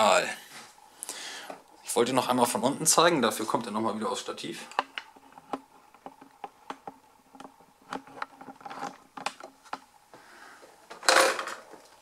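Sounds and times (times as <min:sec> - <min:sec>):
handling clicks and knocks: 0:04.7 - 0:09.9.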